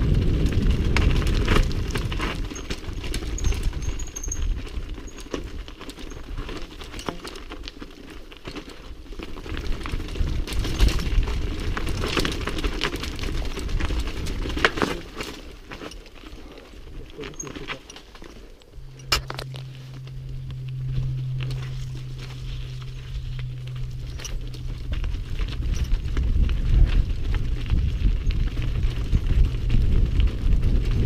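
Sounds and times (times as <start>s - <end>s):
wind rumbling on microphone: 0.0s - 6.7s, 8.9s - 15.7s, 18.6s - 31.0s
bike rattling over bumps: 0.0s - 31.0s
tyres crunching over stones: 0.0s - 31.0s.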